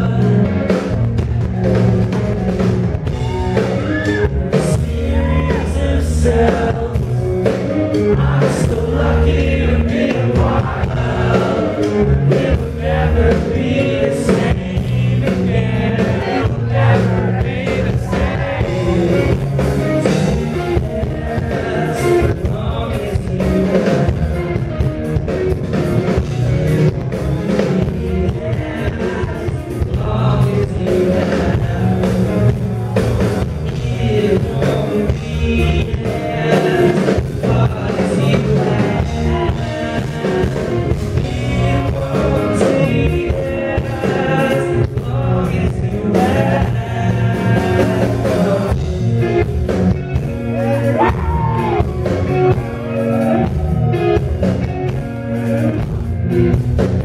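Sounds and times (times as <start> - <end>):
person singing: 0.0 - 0.9, 3.1 - 24.9, 26.1 - 33.0, 33.6 - 49.5
bass guitar: 0.0 - 57.0
drums: 0.0 - 57.0
electric guitars: 0.0 - 57.0.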